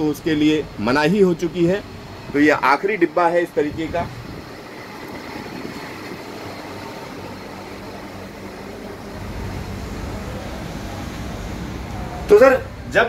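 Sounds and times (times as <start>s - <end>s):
low mechanical hum: 0.0s - 13.0s
rush of air: 3.8s - 12.2s.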